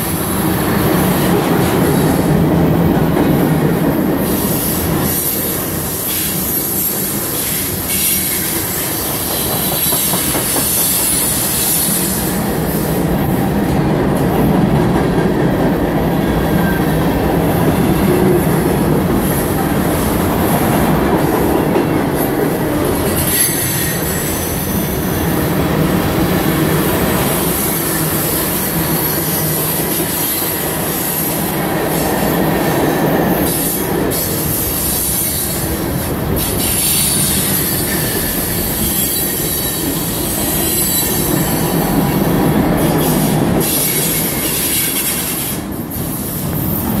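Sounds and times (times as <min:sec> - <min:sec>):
freight train wheels on rail: 0:00.0 - 0:47.0.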